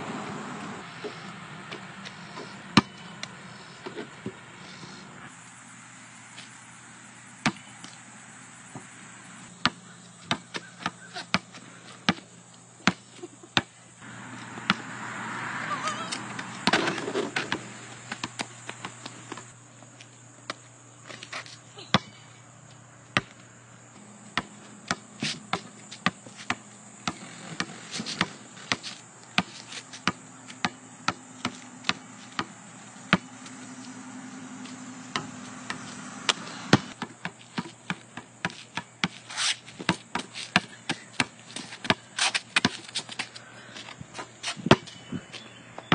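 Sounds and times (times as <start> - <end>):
basketball bouncing on concrete: 1.0 - 3.1, 7.4 - 7.7, 9.6 - 15.0, 15.7 - 19.5, 21.8 - 22.2, 23.2 - 43.3, 44.1 - 45.9
loud noise: 14.0 - 18.0, 30.9 - 37.0.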